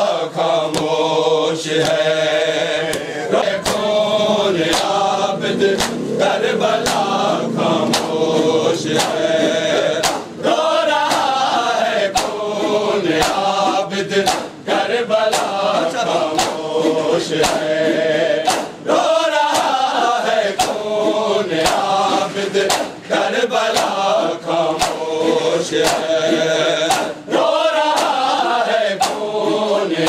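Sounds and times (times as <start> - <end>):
men chanting in chorus: 0.0 - 30.0
chest-beating slaps: 0.6 - 1.0, 1.7 - 2.1, 2.8 - 4.0, 4.6 - 10.4, 11.0 - 14.6, 15.3 - 18.9, 19.5 - 20.0, 20.6 - 20.9, 21.6 - 27.3, 27.9 - 29.6.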